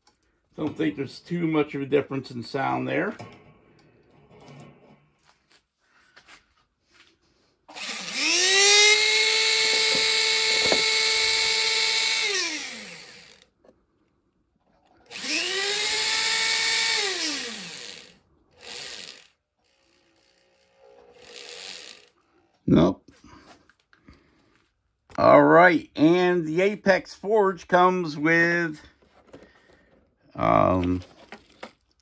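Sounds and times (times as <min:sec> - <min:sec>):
electric rotary tool whining: 0:07.7 - 0:13.4, 0:15.0 - 0:22.2.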